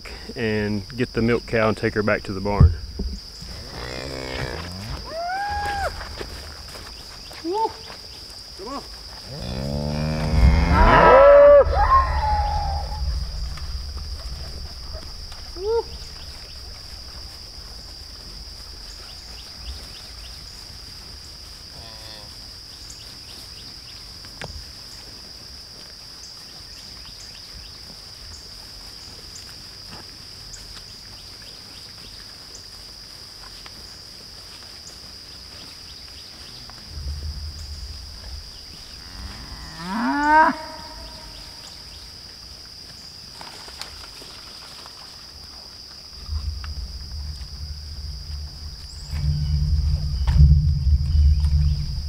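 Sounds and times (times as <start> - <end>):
insects droning: 0.0 - 52.0
low rumbling noise: 2.0 - 5.2, 9.6 - 18.8, 36.8 - 39.6, 46.1 - 52.0
cow mooing: 9.3 - 13.0, 39.0 - 41.3.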